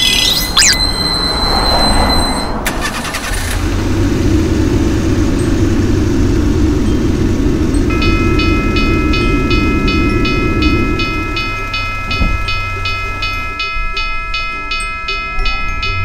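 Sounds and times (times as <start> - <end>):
low engine rumble: 2.5 - 16.0
railroad crossing bell ringing: 5.2 - 16.0.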